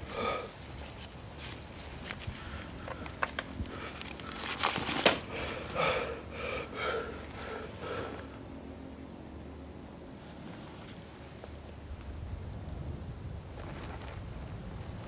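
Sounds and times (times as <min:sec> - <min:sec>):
man breathing heavily with sniffs: 0:00.0 - 0:08.9.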